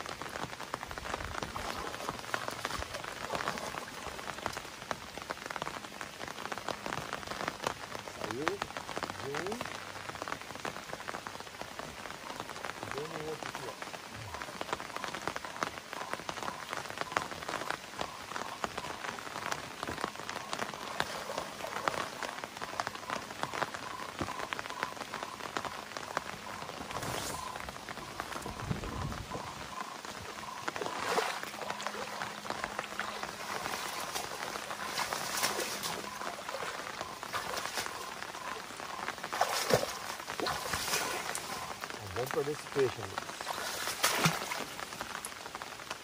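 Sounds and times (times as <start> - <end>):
rain pattering on water: 0.0 - 46.0
foot splashing in water: 30.3 - 42.0, 43.2 - 45.3.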